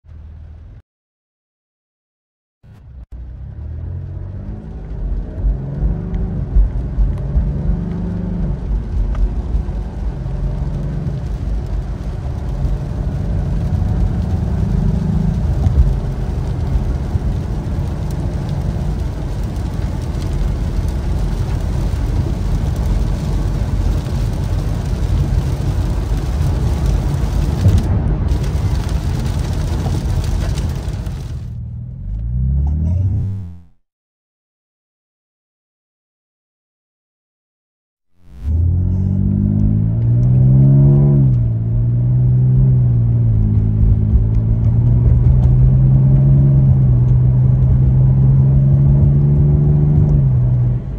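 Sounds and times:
road and tyre rumble: 0:00.0 - 0:00.8, 0:02.6 - 0:33.8, 0:38.1 - 0:50.9
car engine revving through upshifts: 0:03.4 - 0:20.9, 0:32.0 - 0:33.8, 0:38.2 - 0:50.9.

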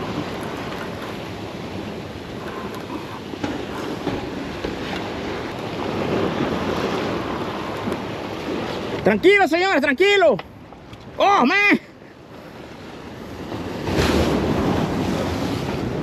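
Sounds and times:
surf breaking over rocks: 0:13.0 - 0:16.0.

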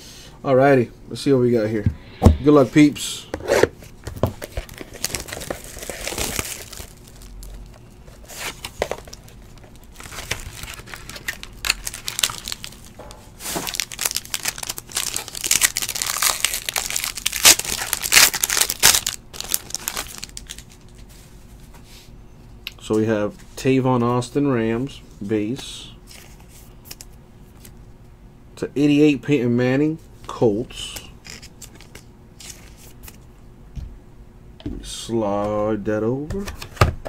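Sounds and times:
plastic wrapping tearing and crinkling: 0:04.4 - 0:21.0.

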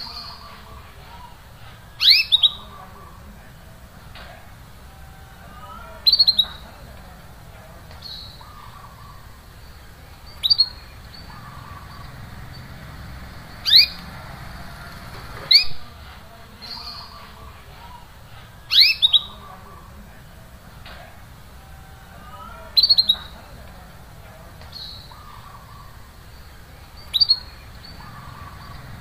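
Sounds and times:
canary chirping: 0:02.0 - 0:03.3, 0:04.9 - 0:07.0, 0:07.9 - 0:17.4, 0:18.7 - 0:19.8, 0:21.6 - 0:23.7, 0:24.7 - 0:29.0.

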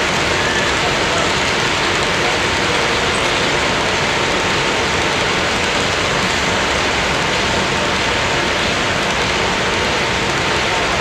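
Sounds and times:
model train cars rolling on track: 0:00.0 - 0:11.0.

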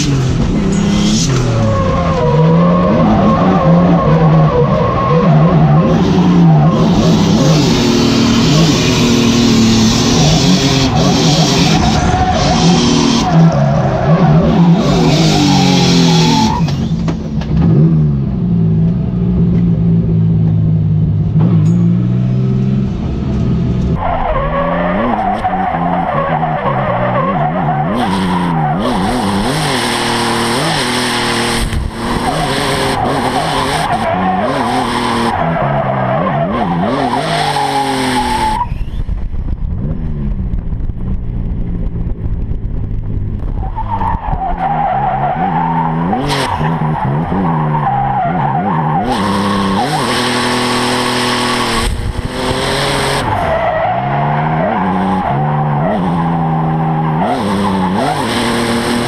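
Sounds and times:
car engine revving hard: 0:00.0 - 0:16.9, 0:24.9 - 0:38.6, 0:44.6 - 0:59.0.

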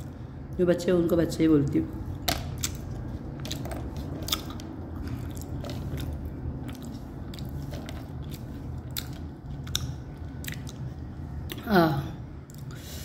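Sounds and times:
steady low hum: 0:00.0 - 0:13.0
crunchy chewing: 0:02.0 - 0:11.6.

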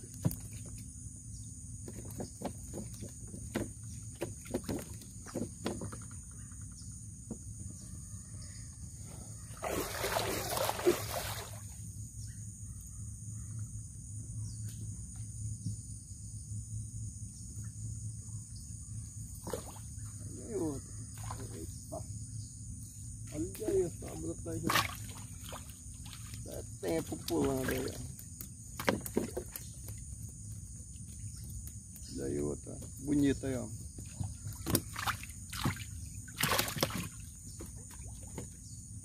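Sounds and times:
high insect drone: 0:00.0 - 0:39.0
water splashing: 0:09.6 - 0:11.7, 0:24.6 - 0:28.2, 0:34.0 - 0:38.4.

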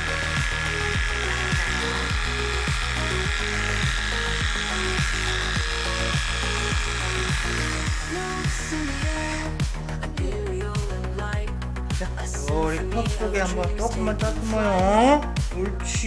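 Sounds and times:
electric pet clipper whining: 0:00.0 - 0:09.7
background music with a beat: 0:00.0 - 0:16.0.

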